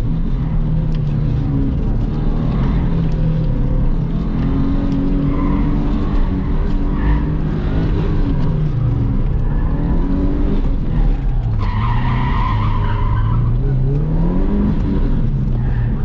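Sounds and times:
car engine revving: 0.0 - 16.0
tyre squeals: 11.0 - 13.8.

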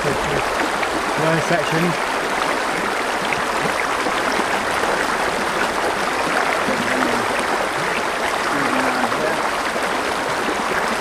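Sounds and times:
shallow river over stones: 0.0 - 11.0.

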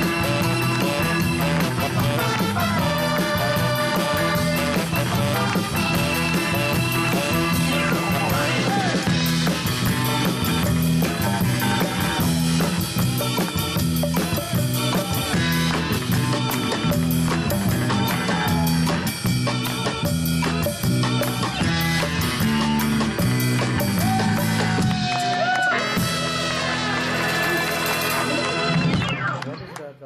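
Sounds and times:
upbeat pop song: 0.0 - 22.0.

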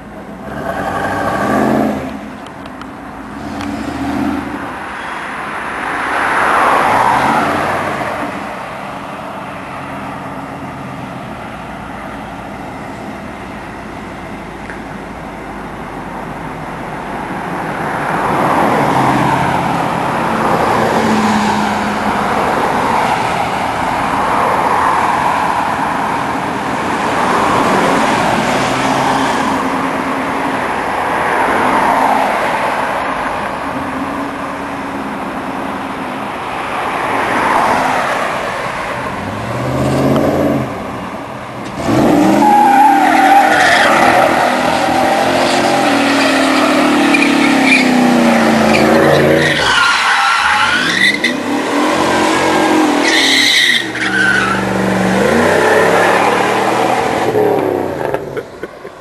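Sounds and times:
tyres squealing: 42.2 - 57.4.

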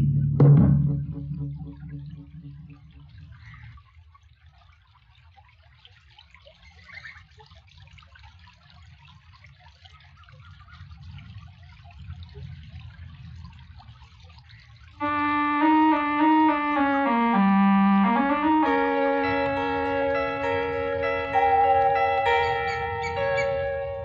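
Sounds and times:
water lapping and trickling: 1.8 - 15.0
piano music: 15.0 - 24.0.

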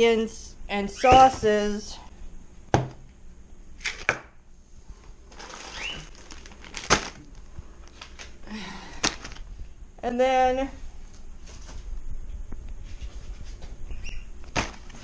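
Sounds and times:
plastic packaging crinkling: 5.3 - 8.4, 9.0 - 9.5.

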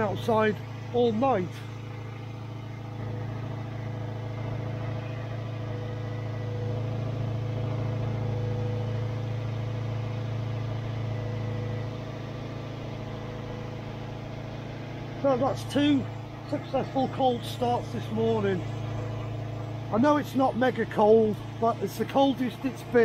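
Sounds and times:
car engine idling: 0.0 - 23.0.

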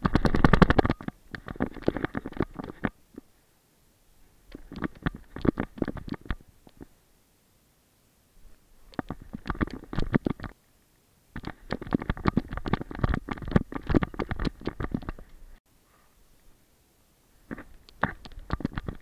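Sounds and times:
camera housing rubbing and knocking: 0.0 - 3.0, 4.6 - 6.9, 9.0 - 10.6, 11.4 - 15.3, 17.5 - 19.0.

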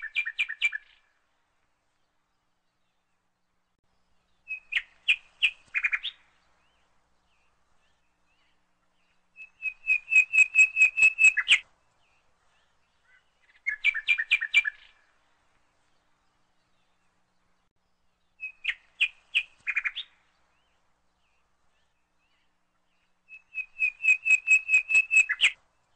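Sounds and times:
small bird chirping: 4.3 - 15.0, 18.2 - 25.6.

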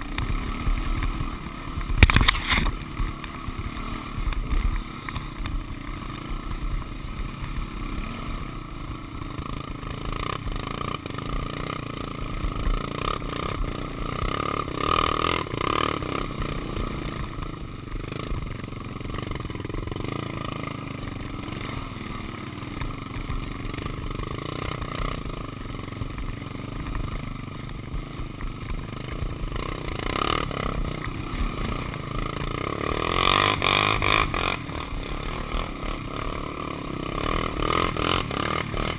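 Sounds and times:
rattling and scraping over rough ground: 0.0 - 7.7
quad engine running under load: 0.0 - 38.9.

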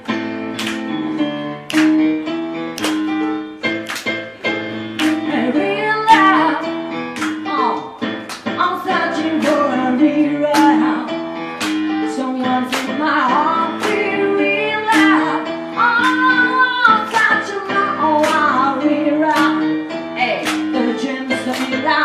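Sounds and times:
electronic keyboard chords: 0.0 - 22.0
woman singing: 5.2 - 6.8, 7.5 - 11.2, 12.0 - 22.0.

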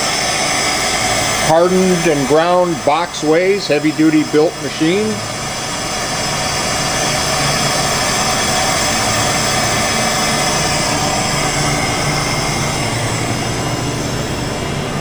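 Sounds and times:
machinery high whine: 0.0 - 15.0
machinery low hum: 0.0 - 15.0.

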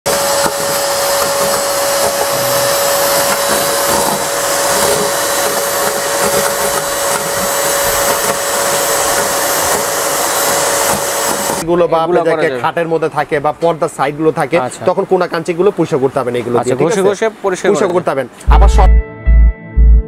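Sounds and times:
vacuum cleaner motor whine: 0.0 - 11.7
vacuum sucking up paper scraps: 0.1 - 11.7.

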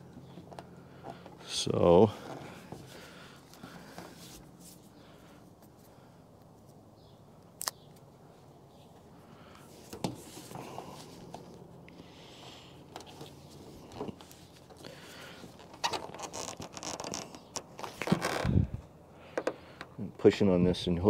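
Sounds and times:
light clicks and rustles of handling: 0.1 - 1.5, 8.7 - 12.0, 12.8 - 18.4.

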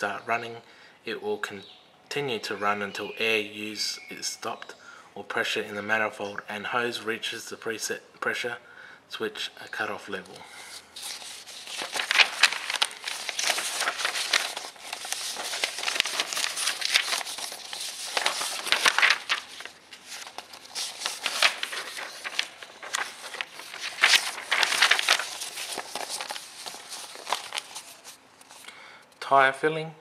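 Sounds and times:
paper sheets rustling: 10.6 - 28.7.

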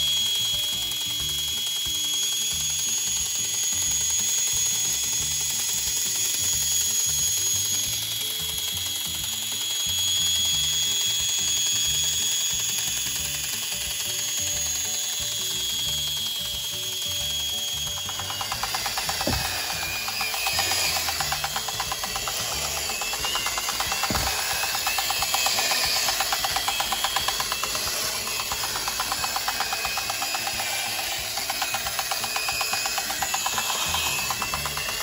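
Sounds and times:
small electric motor whine: 0.0 - 35.0
gear chatter: 17.5 - 35.0.

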